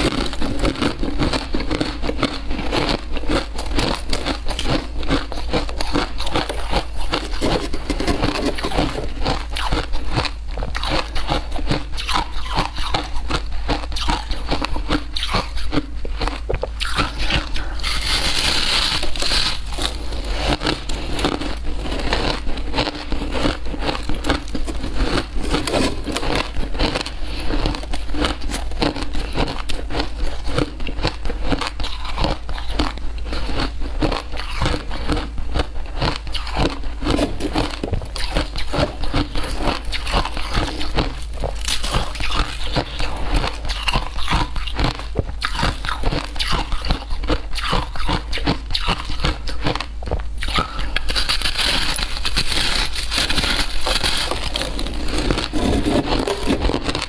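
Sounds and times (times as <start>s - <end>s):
shaved ice being chewed: 0.0s - 57.0s.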